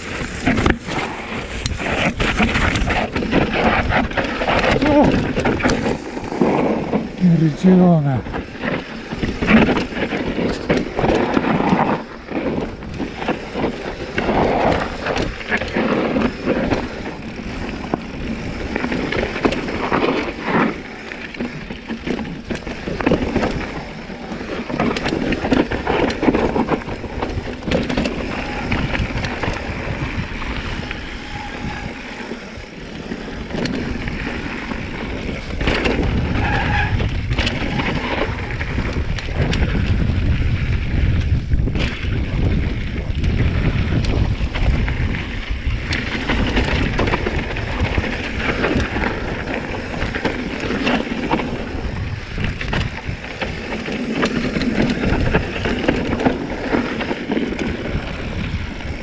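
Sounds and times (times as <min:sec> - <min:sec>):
bike rattling over bumps: 0:00.0 - 0:59.0
bike tyres skidding over dirt: 0:00.0 - 0:59.0
wind on microphone: 0:21.6 - 0:59.0.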